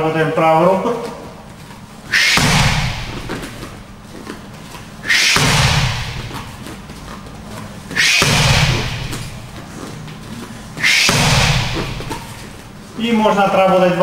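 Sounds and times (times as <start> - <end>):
sharp hissing exhale: 2.1 - 3.1, 5.1 - 5.5, 8.0 - 9.2, 10.8 - 11.6
gloves slapping kick pad: 2.1 - 3.8, 5.1 - 6.8, 8.0 - 9.7, 10.8 - 12.3.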